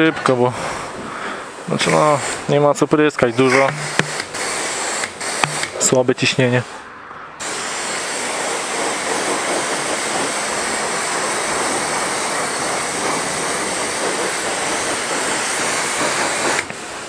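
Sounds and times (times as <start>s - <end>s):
pressure washer spraying water: 0.6s - 17.0s
person speaking: 1.6s - 4.2s, 5.5s - 6.8s.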